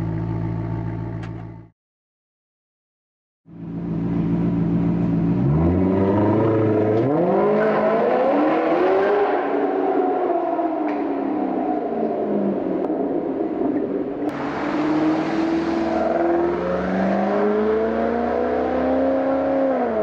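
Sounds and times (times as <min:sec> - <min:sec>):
car engine accelerating: 0:03.7 - 0:09.8, 0:14.3 - 0:20.0.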